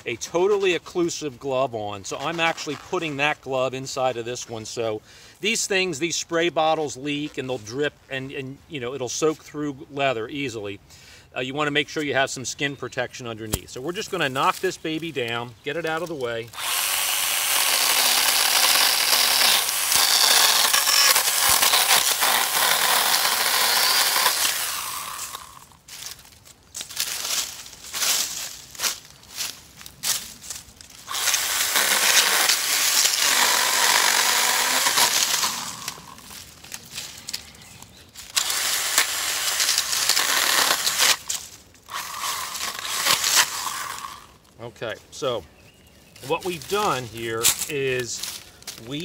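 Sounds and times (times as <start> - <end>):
crackling stems and dry leaves: 13.4 - 49.0
cordless saw cutting stems: 13.5 - 25.7, 30.9 - 36.8, 38.2 - 44.4.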